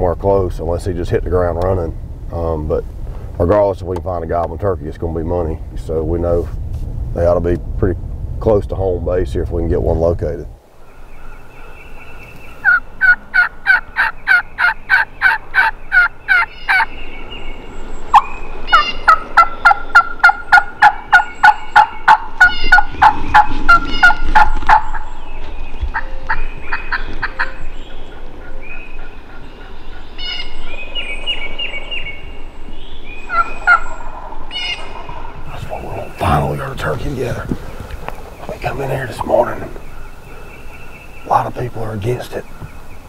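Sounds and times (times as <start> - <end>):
turkey hen yelping: 11.6 - 16.9, 18.1 - 25.2, 25.9 - 30.6, 33.3 - 35.5.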